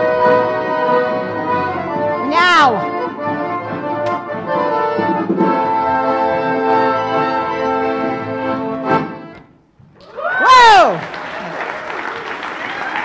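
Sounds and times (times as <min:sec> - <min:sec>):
accordion ensemble playing: 0:00.0 - 0:09.4.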